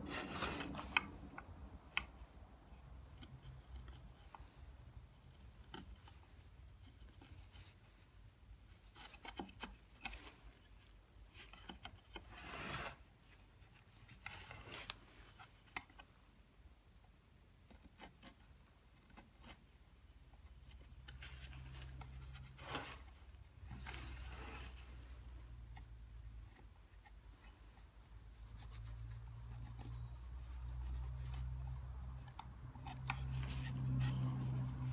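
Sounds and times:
low steady hum: 0:00.0 - 0:34.9
carving gouge scraping wood: 0:08.8 - 0:13.1, 0:17.7 - 0:34.9.

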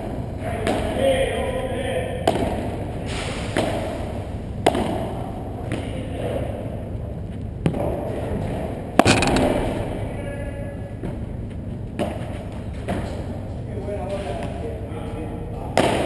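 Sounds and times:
steady background hum: 0:00.0 - 0:16.0
ball hits echoing in hall: 0:02.2 - 0:05.9, 0:07.6 - 0:11.3, 0:15.7 - 0:16.0.

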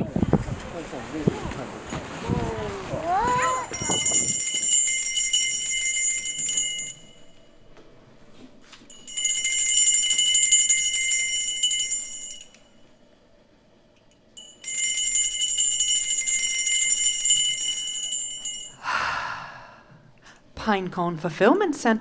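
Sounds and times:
old telephone bell ringing: 0:03.3 - 0:07.6, 0:08.9 - 0:12.8, 0:14.4 - 0:18.8.

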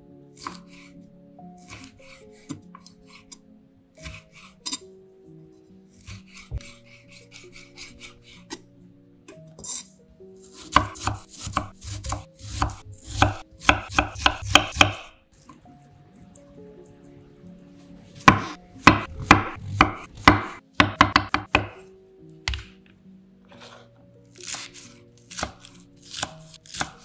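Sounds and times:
soft background music: 0:00.0 - 0:27.0
knife slicing on wooden board: 0:01.6 - 0:03.4, 0:04.0 - 0:04.8, 0:05.9 - 0:08.6, 0:10.5 - 0:14.9, 0:23.5 - 0:27.0.

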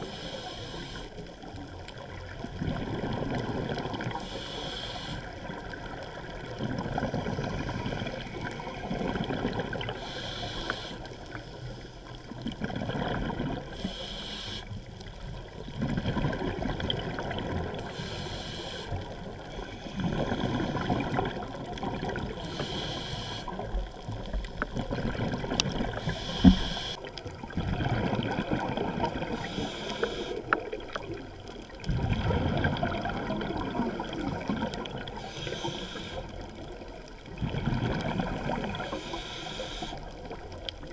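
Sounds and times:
diver breathing through regulator: 0:00.0 - 0:01.2, 0:04.1 - 0:05.5, 0:09.8 - 0:12.1, 0:13.5 - 0:14.8, 0:17.7 - 0:21.2, 0:22.2 - 0:23.7, 0:25.9 - 0:27.1, 0:29.1 - 0:30.6, 0:35.0 - 0:36.4, 0:38.6 - 0:40.2
bubbles rushing underwater: 0:02.2 - 0:04.2, 0:05.4 - 0:10.0, 0:12.4 - 0:13.7, 0:15.3 - 0:17.9, 0:19.8 - 0:22.4, 0:23.6 - 0:29.8, 0:30.5 - 0:35.2, 0:36.5 - 0:38.9.

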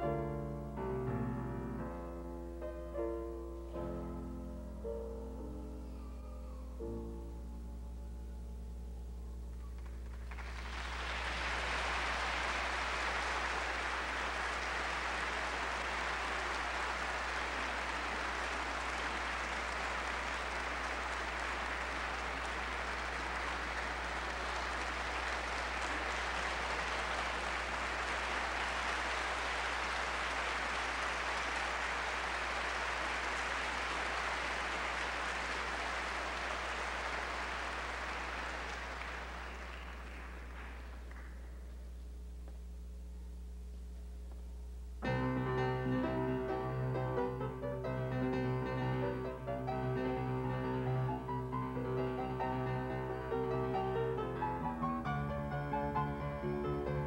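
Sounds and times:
audience applauding: 0:09.6 - 0:41.7, 0:45.1 - 0:57.0.

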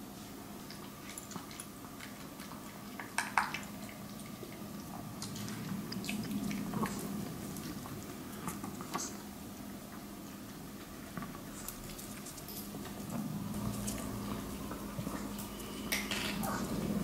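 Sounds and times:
dog crunching kibble: 0:10.7 - 0:16.7.

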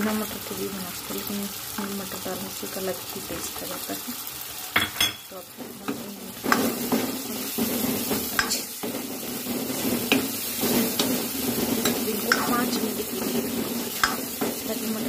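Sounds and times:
oil sizzling: 0:00.0 - 0:15.0
ladle stirring and scraping: 0:05.5 - 0:15.0
ladle clicking against pan: 0:11.0 - 0:12.6, 0:13.9 - 0:14.6.

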